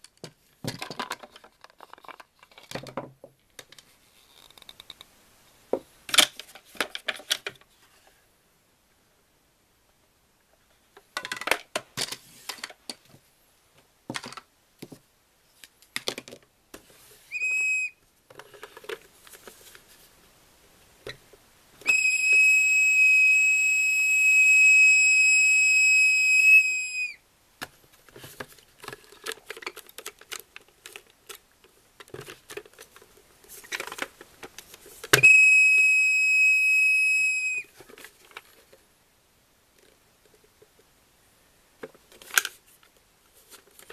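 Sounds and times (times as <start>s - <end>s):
toy tea pot whistling: 17.3s - 18.0s, 21.8s - 27.2s, 35.2s - 37.7s.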